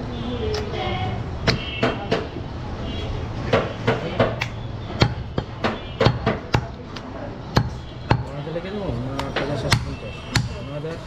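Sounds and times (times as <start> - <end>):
knife chopping meat on wood: 3.5 - 8.4, 9.1 - 10.6.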